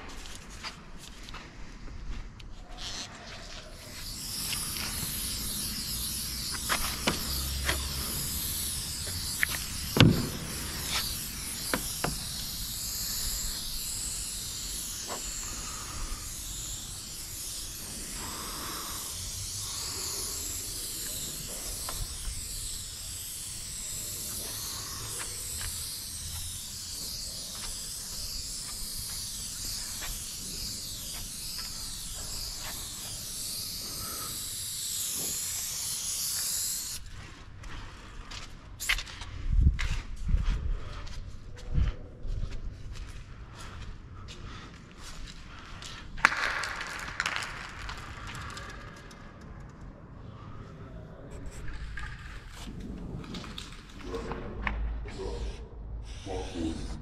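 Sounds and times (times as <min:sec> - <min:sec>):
spray can hissing: 0:02.8 - 0:40.2, 0:44.7 - 0:49.4, 0:51.4 - 0:54.2, 0:55.0 - 0:57.0
sharp clicks and knocks: 0:09.0 - 0:11.1.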